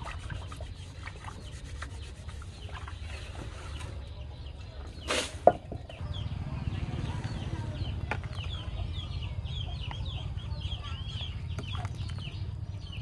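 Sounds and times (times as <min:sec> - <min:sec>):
chicks peeping: 0:05.9 - 0:13.0.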